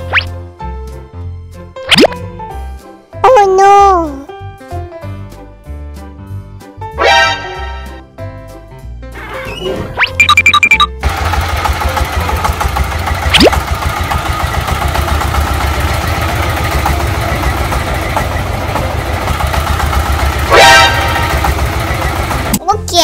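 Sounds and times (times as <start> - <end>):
engine pulsing rumble: 9.2 - 22.7.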